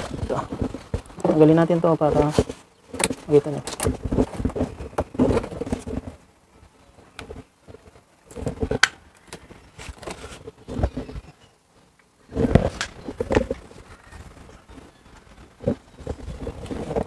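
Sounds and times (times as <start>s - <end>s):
rustles knocks and scrapes: 2.1s - 6.2s, 9.4s - 11.3s.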